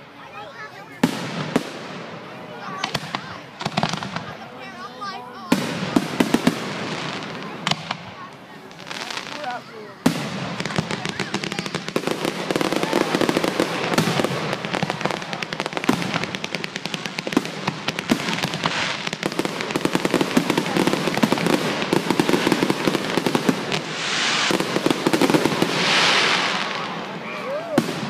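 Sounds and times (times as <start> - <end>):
fireworks bursting and crackling: 0.0 - 28.0
rushing hiss: 22.5 - 27.6.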